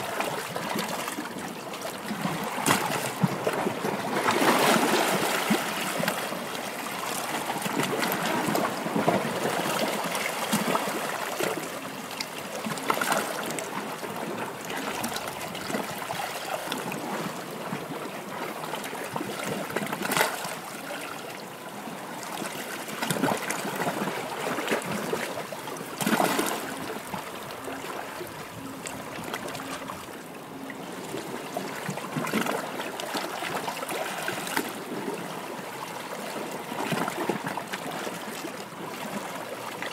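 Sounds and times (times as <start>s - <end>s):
water splashing: 22.8s - 35.4s.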